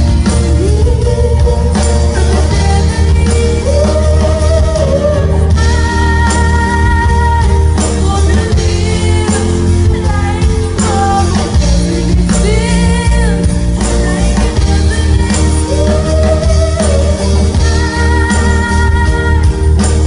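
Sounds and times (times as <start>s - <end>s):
pop band with heavy bass: 0.0s - 20.0s
woman singing into a microphone: 0.0s - 20.0s.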